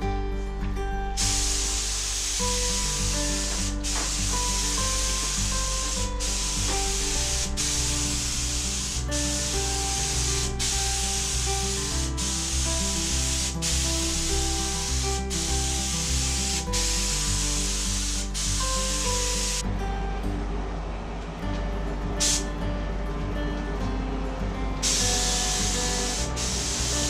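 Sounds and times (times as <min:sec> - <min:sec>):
background music: 0:00.0 - 0:27.0
paint spray gun hissing: 0:01.2 - 0:19.6, 0:22.2 - 0:22.5, 0:24.8 - 0:27.0.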